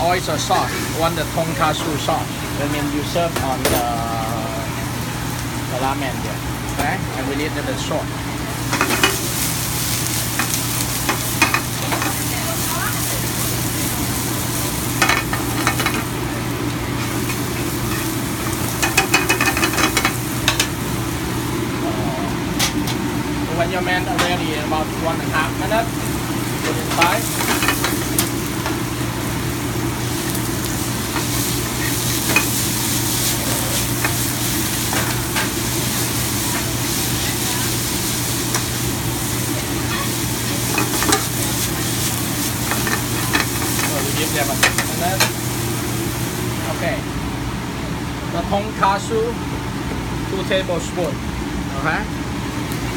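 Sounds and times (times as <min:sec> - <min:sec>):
noodles sizzling in a pan: 0:00.0 - 0:47.4
metal tongs scraping a pan: 0:40.6 - 0:45.4
tongs clinking on a pan: 0:40.7 - 0:41.4.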